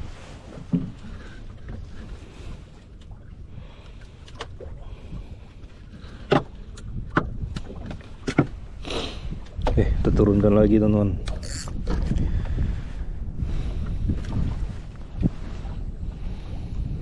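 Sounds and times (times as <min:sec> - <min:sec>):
wind and water rumble: 0:00.0 - 0:17.0
fishing reel clicks and knocks: 0:11.3 - 0:11.8.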